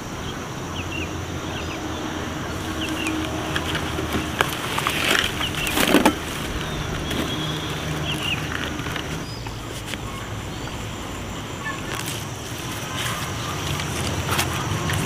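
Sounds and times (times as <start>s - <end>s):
steady low hum: 0.0s - 15.0s
rustling and crackling of onions: 2.6s - 10.2s.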